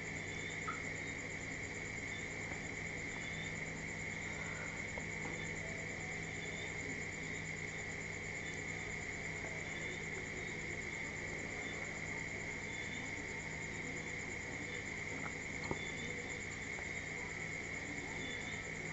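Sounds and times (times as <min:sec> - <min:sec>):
faint ticks: 0:00.6 - 0:00.8.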